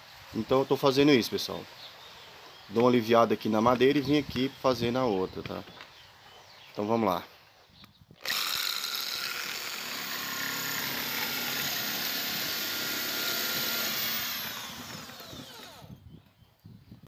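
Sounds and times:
power drill whining: 8.2s - 16.0s.

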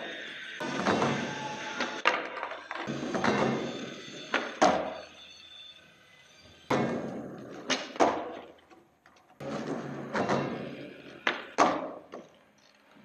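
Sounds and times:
skateboard wheels rolling: 0.0s - 13.0s
skateboard clacking on concrete: 2.0s - 3.5s, 6.9s - 10.6s, 11.2s - 12.6s.

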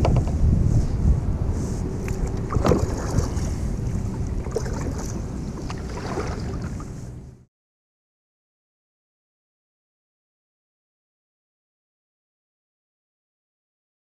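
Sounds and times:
sharp knocks and clicks: 0.0s - 0.4s
wind buffeting microphone: 0.0s - 7.4s
paddle strokes in water: 0.1s - 7.3s.

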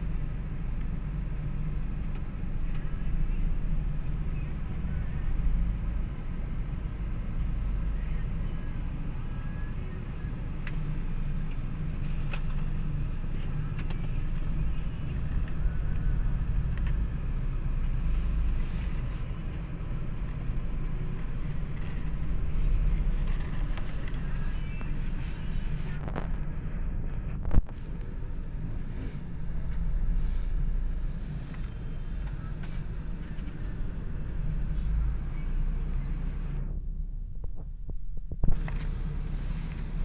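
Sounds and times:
rumble of street traffic: 0.0s - 40.0s.

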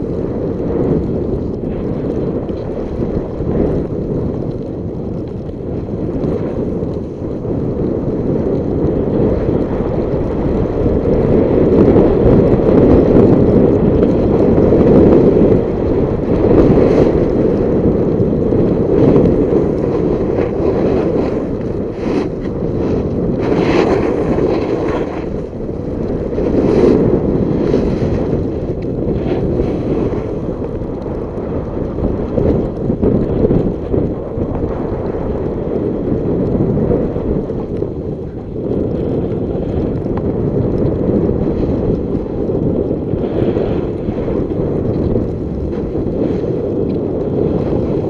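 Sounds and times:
wind on microphone: 0.0s - 48.0s
skis scraping on snow: 10.3s - 33.7s, 38.6s - 48.0s.

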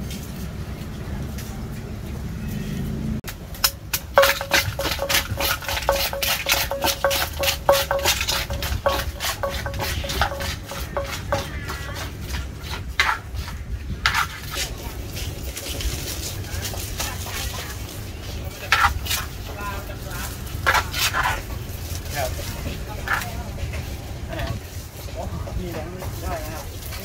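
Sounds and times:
utensils clinking on containers: 3.6s - 13.5s.

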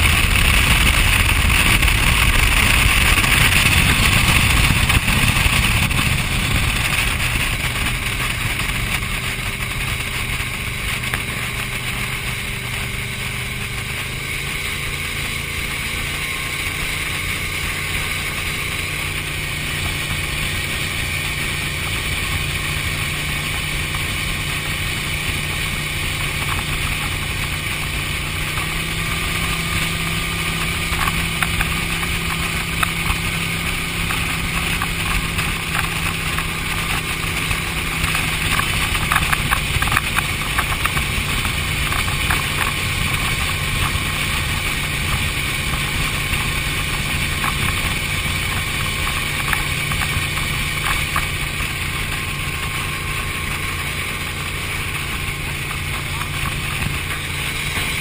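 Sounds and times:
speedboat engine running: 0.0s - 58.0s
water rushing: 0.0s - 58.0s
wind: 0.0s - 58.0s.

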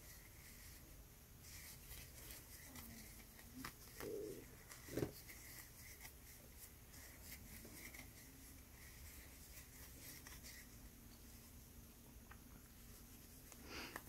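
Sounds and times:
crochet hook scratching yarn: 0.0s - 10.9s.

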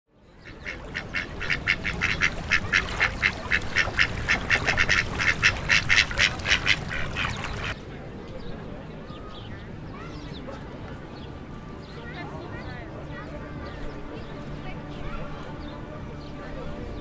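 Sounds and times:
ducks quacking: 0.4s - 7.8s.

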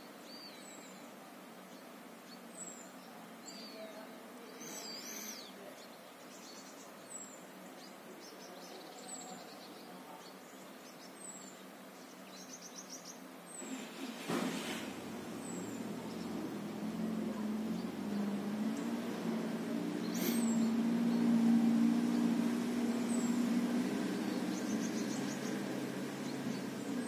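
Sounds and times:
birds warbling and trilling: 0.0s - 27.0s
high falling bird call: 13.6s - 27.0s
loud rushing noise: 13.6s - 27.0s
low background hum: 14.9s - 27.0s.

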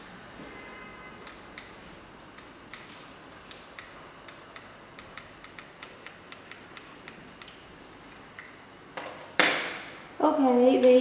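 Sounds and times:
sharp irregular clicks: 2.4s - 8.6s.

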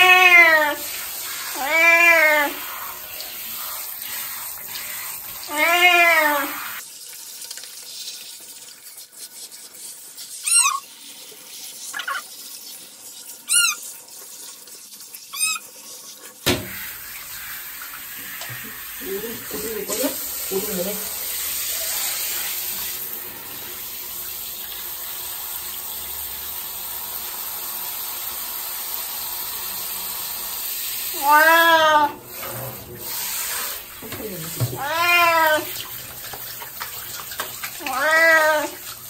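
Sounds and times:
cat meowing: 0.0s - 0.8s, 1.5s - 2.6s, 5.5s - 6.7s, 31.2s - 32.2s, 34.4s - 35.8s, 37.8s - 38.8s
hand shower water hissing: 0.0s - 6.8s, 15.3s - 39.0s.

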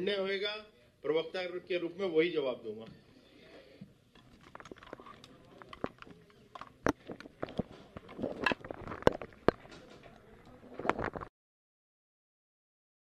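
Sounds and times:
murmured voices: 2.8s - 11.2s.

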